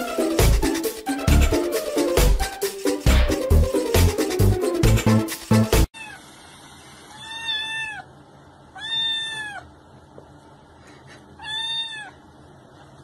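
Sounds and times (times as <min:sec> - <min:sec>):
electronic dance music: 0:00.0 - 0:05.9
kitten mewing: 0:07.1 - 0:08.1, 0:08.8 - 0:09.7, 0:11.4 - 0:12.2.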